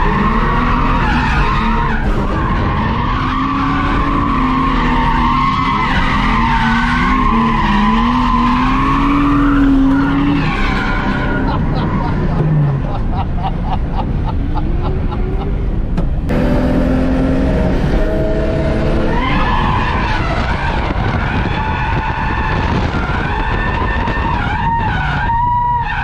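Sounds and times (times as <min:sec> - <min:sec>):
car engine revving hard: 0:16.3 - 0:24.2.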